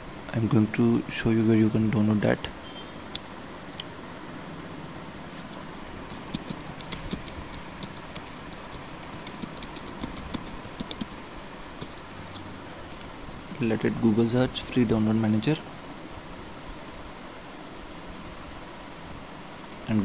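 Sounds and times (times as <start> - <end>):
steady background noise: 0.0 - 20.0
keyboard key clicks: 6.1 - 11.2.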